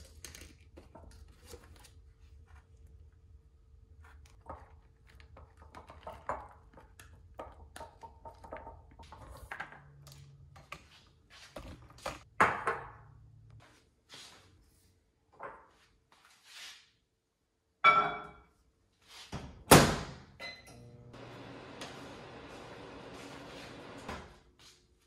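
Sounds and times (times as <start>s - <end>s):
dishes clattering: 17.8s - 18.4s.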